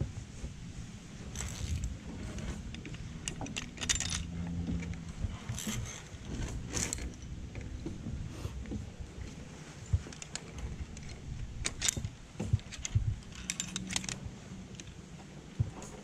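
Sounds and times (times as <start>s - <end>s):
carabiners jingling and clinking: 1.3s - 7.7s, 9.8s - 15.0s.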